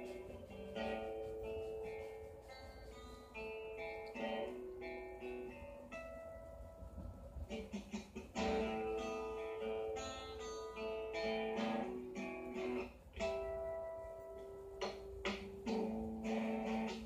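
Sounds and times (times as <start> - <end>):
slow guitar melody: 0.0 - 17.0.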